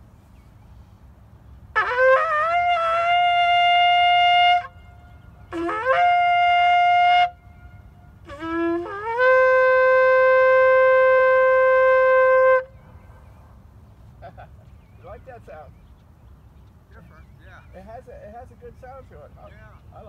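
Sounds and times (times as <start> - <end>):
shofar blasts: 1.8 - 12.8.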